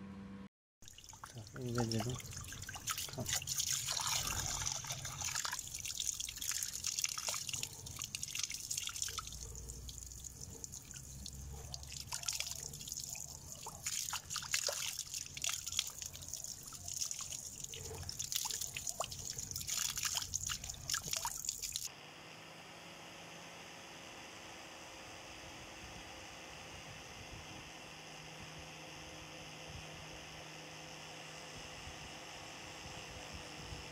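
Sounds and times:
water splashing off knife blade: 1.2 - 21.9.

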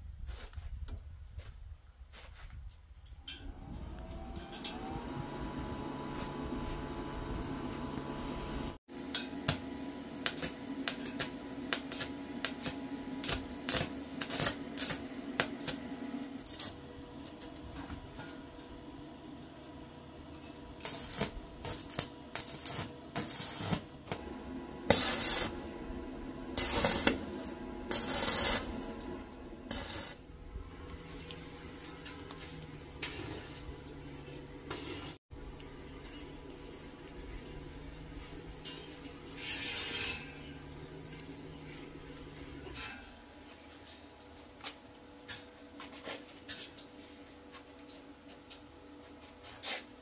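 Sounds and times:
welding arc crackling: 5.8 - 17.5, 20.4 - 31.5.

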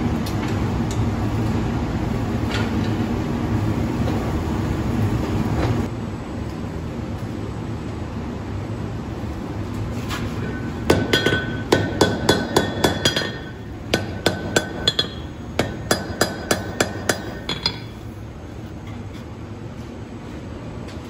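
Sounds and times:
hammer striking steel on anvil: 10.5 - 18.1.

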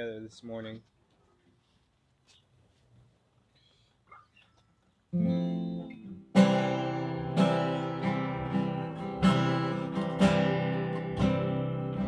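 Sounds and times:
acoustic guitar strumming: 5.1 - 12.0.

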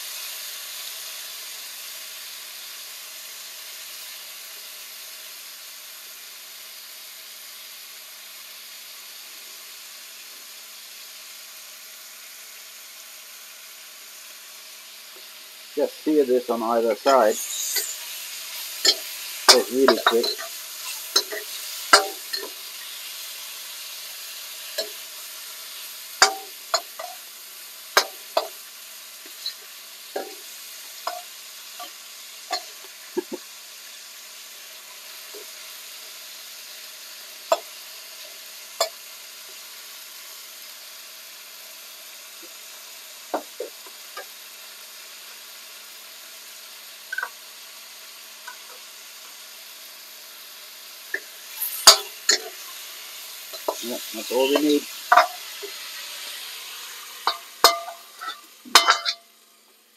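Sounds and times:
meat sizzling in a wok: 0.0 - 59.9
metal ladle scraping a wok: 17.0 - 23.3, 29.3 - 30.4, 51.2 - 59.3.

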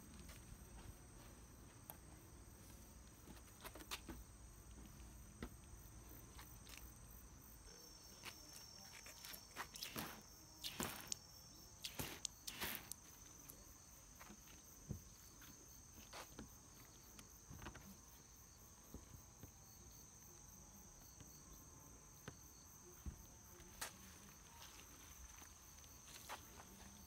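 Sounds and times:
high-pitched insect trill: 5.7 - 18.8.

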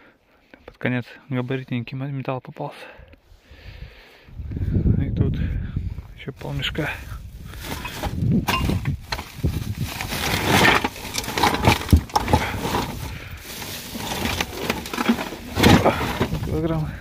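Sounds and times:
scrap iron clanking in a sack: 7.6 - 17.0.

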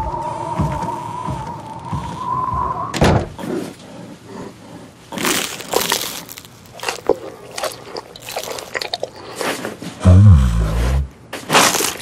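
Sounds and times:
sudden thump: 2.9 - 3.4
food crunching being chewed: 5.0 - 9.9, 11.5 - 12.0.

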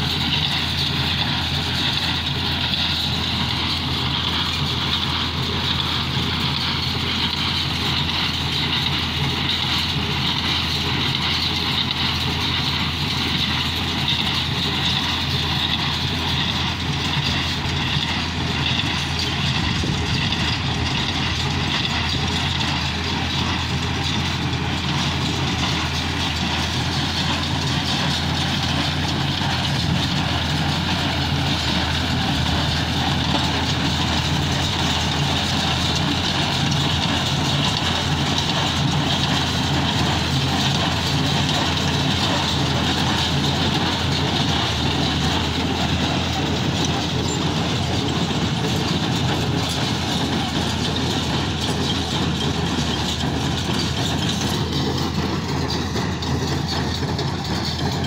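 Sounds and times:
hay baler machinery: 0.0 - 58.0
tractor diesel engine running: 0.0 - 58.0.

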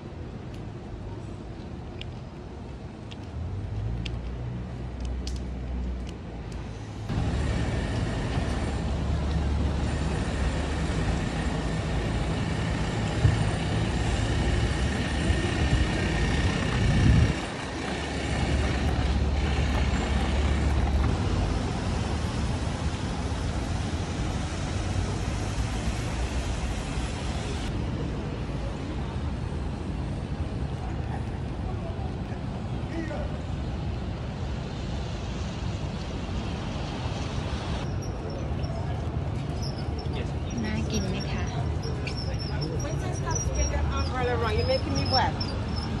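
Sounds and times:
traffic engine rumble: 0.0 - 46.0
tyre hiss on wet pavement: 17.9 - 27.7.

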